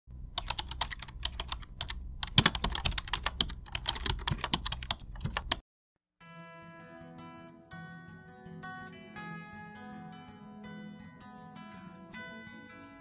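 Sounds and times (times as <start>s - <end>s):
computer keyboard typing: 0.3s - 5.6s
acoustic guitar music: 6.2s - 13.0s.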